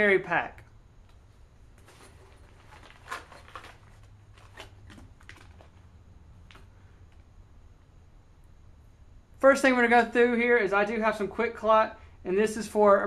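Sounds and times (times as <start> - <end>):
low steady hum: 0.0 - 13.0
fabric pouch rustling: 1.7 - 5.9.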